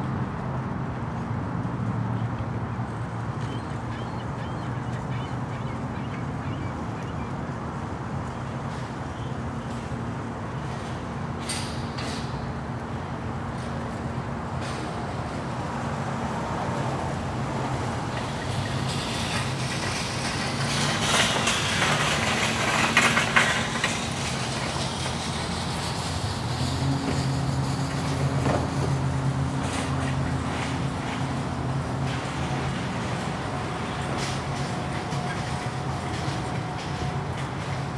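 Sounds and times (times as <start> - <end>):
store noise and clatter: 18.1 - 37.9.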